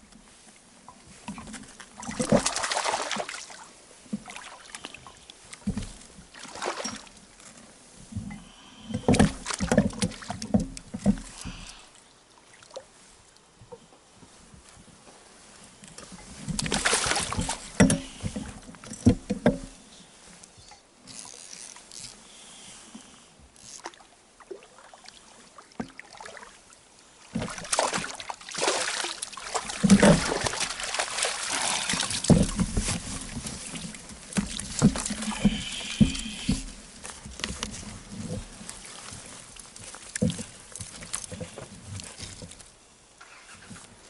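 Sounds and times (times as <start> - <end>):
water sounds: 16.1 - 18.7, 23.6 - 42.6.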